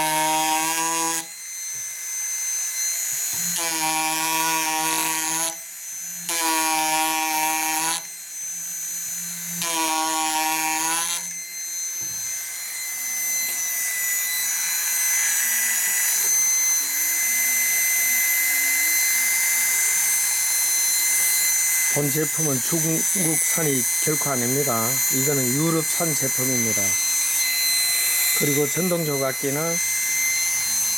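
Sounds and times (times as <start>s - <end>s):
engraver buzzing into wood: 0.0s - 30.9s.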